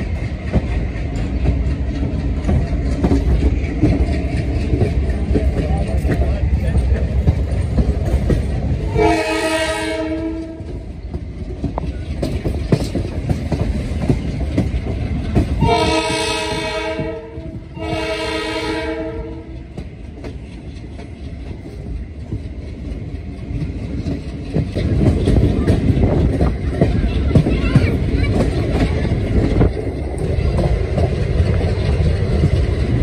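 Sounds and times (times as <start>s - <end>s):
train wheels clickety-clack on rails: 0.0s - 33.0s
train horn blasts: 8.9s - 10.8s, 15.6s - 19.7s.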